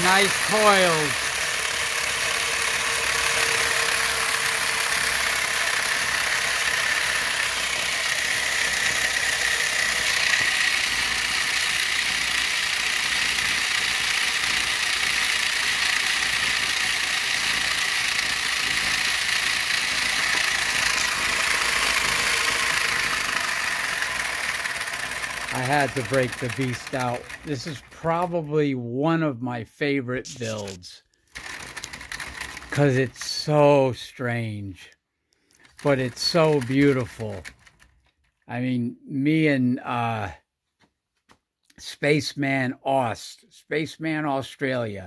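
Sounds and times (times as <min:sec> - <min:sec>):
motor running with rattly whir: 0:00.0 - 0:28.5, 0:30.3 - 0:33.5, 0:35.4 - 0:38.4.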